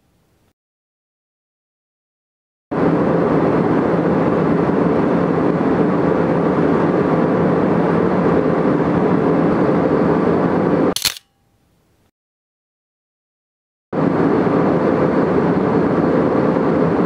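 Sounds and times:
aircraft cabin engine roar: 2.7 - 11.2, 14.0 - 17.0.

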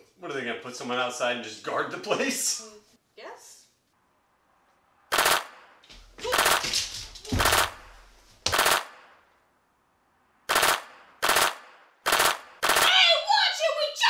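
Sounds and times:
automatic gunfire bursts: 5.1 - 5.6, 10.5 - 12.9.

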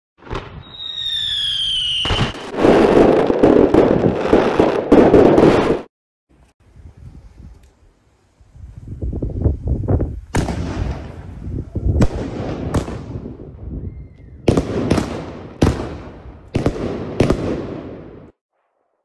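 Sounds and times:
fireworks bangs echoing: 0.2 - 5.9, 10.3 - 13.7, 14.4 - 18.4
fireworks crackling: 0.2 - 6.5, 7.2 - 13.6.

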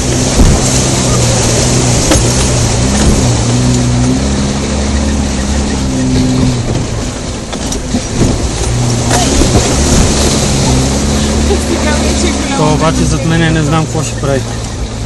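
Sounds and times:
vehicle engine revving: 0.0 - 15.0
knocks from bumping vehicle: 0.3 - 0.7.

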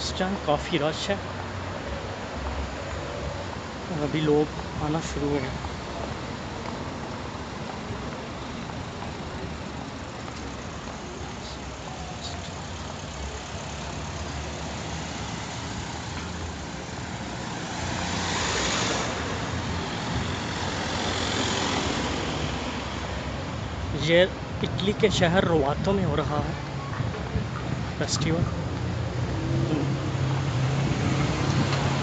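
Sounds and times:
street traffic hum: 0.0 - 32.0
car passing close: 4.2 - 23.5, 26.9 - 32.0.

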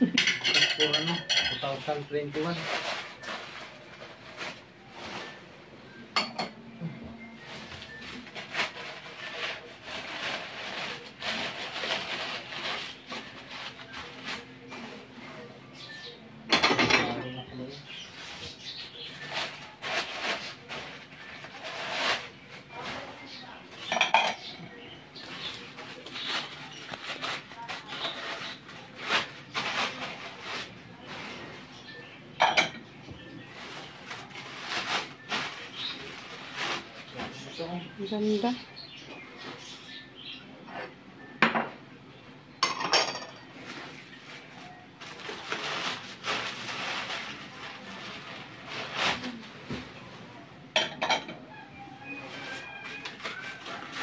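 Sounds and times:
dishes clinking: 0.0 - 1.6, 6.1 - 6.6, 16.5 - 17.3, 23.8 - 24.9, 32.4 - 33.0, 40.6 - 41.8, 42.6 - 43.5, 50.7 - 51.5
newspaper rustling and crinkling: 7.4 - 15.1, 17.9 - 23.4, 25.2 - 31.7, 33.5 - 37.6, 43.6 - 50.0, 52.3 - 54.0.

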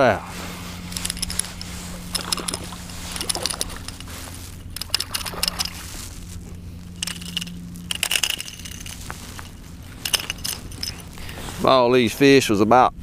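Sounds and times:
steady low hum: 0.0 - 13.0
spinning reel cranking: 0.9 - 5.9, 7.0 - 11.4.

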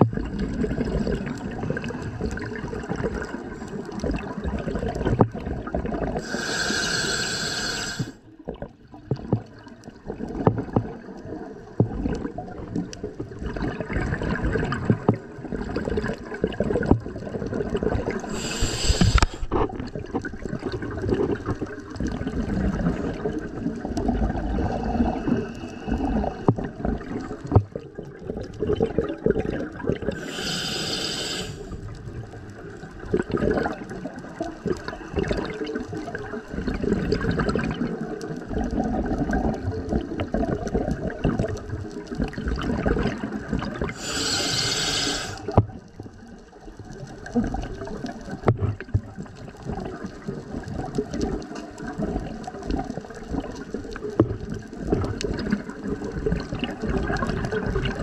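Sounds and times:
gurgling exhaled bubbles: 0.0 - 58.0
regulator hissing inhalations: 6.2 - 8.2, 18.2 - 19.6, 30.2 - 31.8, 43.9 - 45.6.

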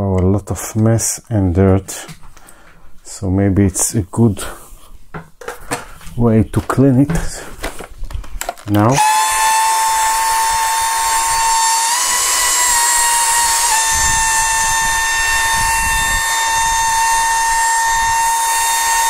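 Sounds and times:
vacuum cleaner motor whine: 8.9 - 19.0.

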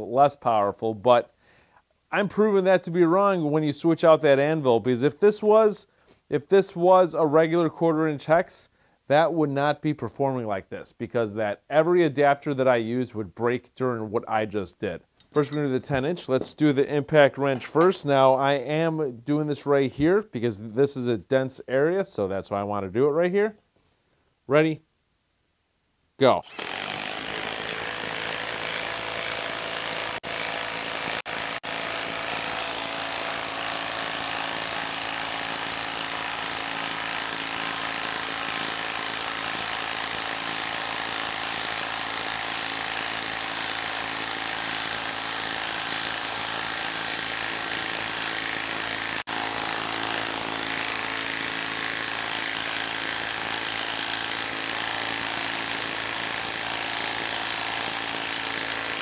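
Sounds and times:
impact wrench hammering: 15.2 - 16.6.

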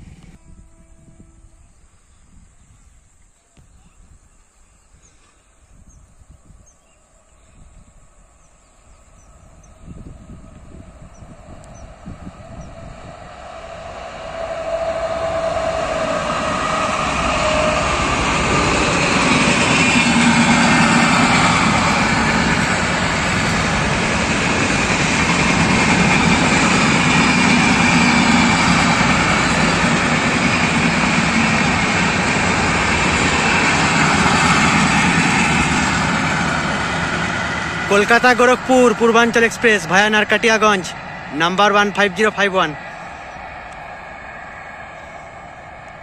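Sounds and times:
train wheels rumbling on rail: 7.4 - 46.0.

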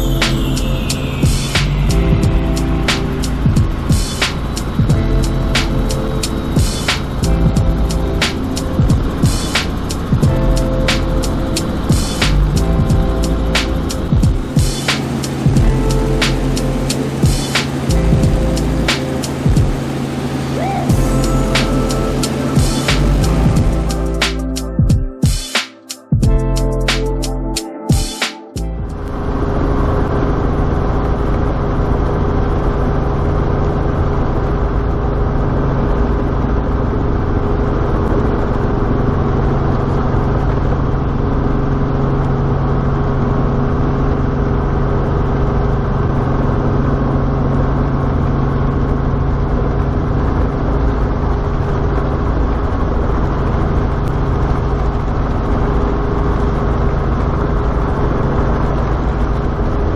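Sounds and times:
helicopter engine and rotors droning: 0.6 - 11.9, 14.9 - 23.4.

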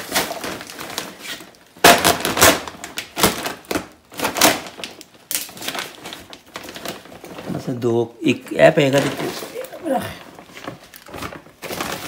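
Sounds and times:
plastic sack crinkling: 0.0 - 12.0.

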